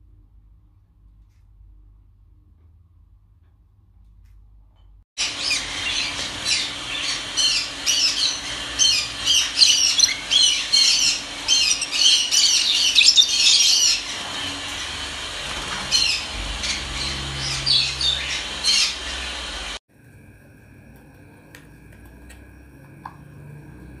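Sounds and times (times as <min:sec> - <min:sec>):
lovebirds squawking and chirping: 0:05.2 - 0:19.8.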